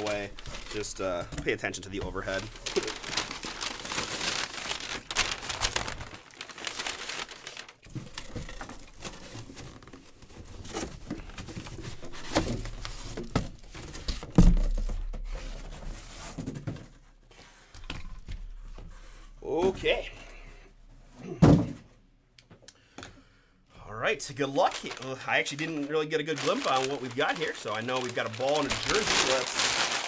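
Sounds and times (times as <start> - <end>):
packing paper crinkling: 0.0 - 14.9, 24.4 - 30.0.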